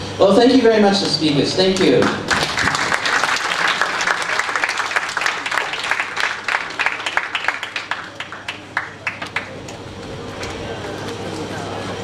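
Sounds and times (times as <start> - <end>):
audience applauding: 1.8 - 9.8.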